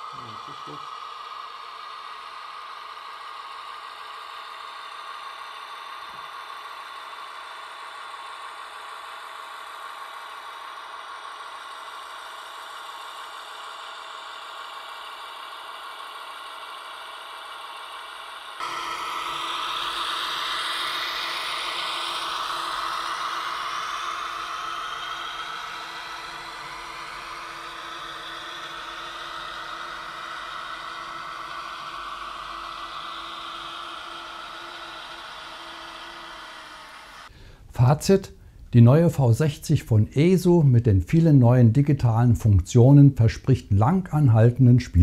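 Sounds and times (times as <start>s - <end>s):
diesel engine sound from small speaker: 0.0s - 45.0s.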